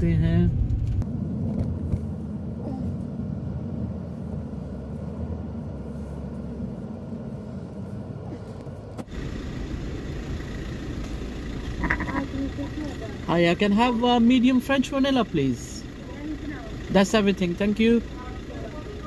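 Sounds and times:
car engine and tyre rumble: 0.0s - 19.0s
steady hum: 6.6s - 19.0s.

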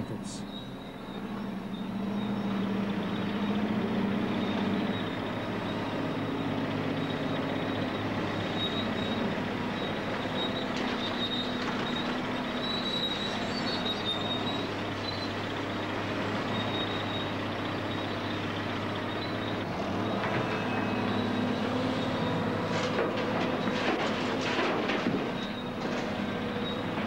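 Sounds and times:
high metallic squeal: 0.0s - 3.6s, 4.2s - 15.4s, 19.1s - 23.0s
heavy machinery engine drone: 0.0s - 27.0s.

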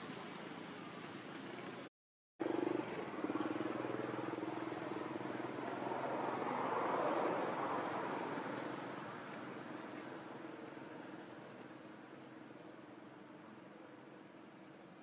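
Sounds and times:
vehicle engine humming: 2.4s - 14.5s.

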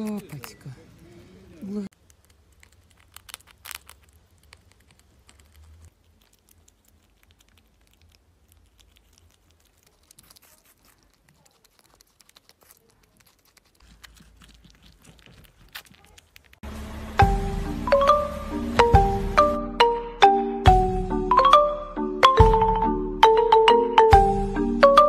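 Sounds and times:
squirrel chewing food: 0.0s - 16.7s.

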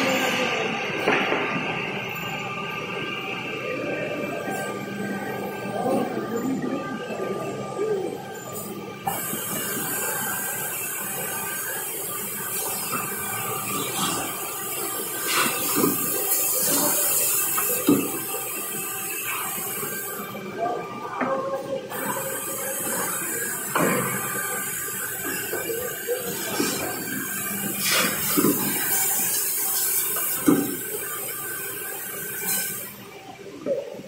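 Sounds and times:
loud machine hiss: 8.6s - 20.5s, 21.9s - 33.3s.

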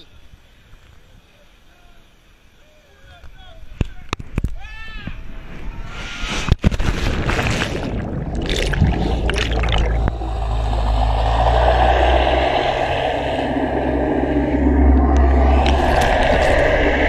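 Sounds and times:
underwater bubbling and rushing water: 6.8s - 17.0s
low underwater rumble: 7.4s - 17.0s.

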